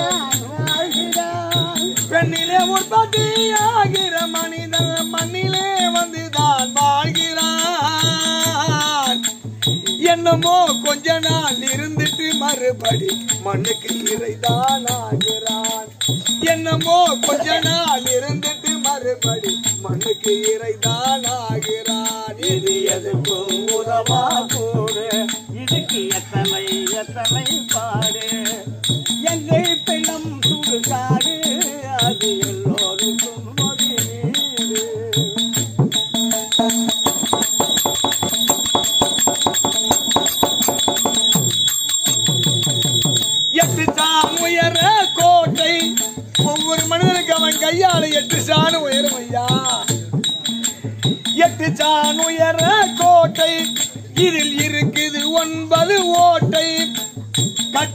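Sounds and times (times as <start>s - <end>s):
person singing: 0.0s - 9.2s
jingling rattles: 0.0s - 57.9s
percussion beat: 0.0s - 57.9s.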